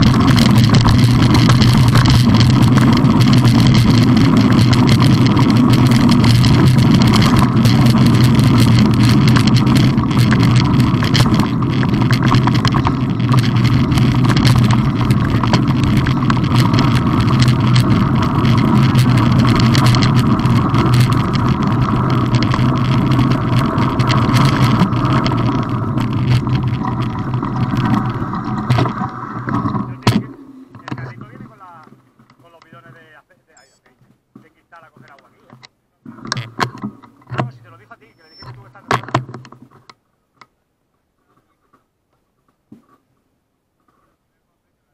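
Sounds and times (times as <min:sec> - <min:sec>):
bike tyres rumbling on gravel: 0:00.0 - 0:33.5
loose stones rattling: 0:00.0 - 0:33.7.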